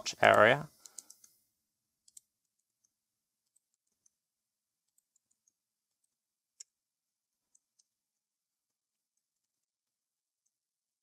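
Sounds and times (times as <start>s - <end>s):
mouse and keyboard clicks: 0.2s - 1.4s, 2.0s - 4.2s.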